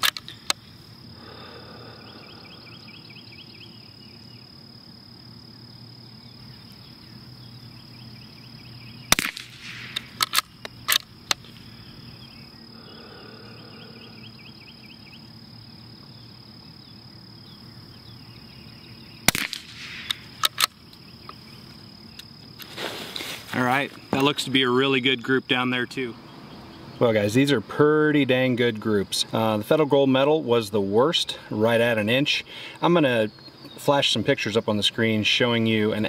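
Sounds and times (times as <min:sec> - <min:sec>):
rifle bolt clicks: 0:00.0 - 0:00.6, 0:09.2 - 0:11.4, 0:19.3 - 0:20.8
crickets chirping: 0:00.0 - 0:36.0
insects droning: 0:00.0 - 0:36.0
rifle shot crack: 0:09.1 - 0:11.4, 0:19.3 - 0:20.7.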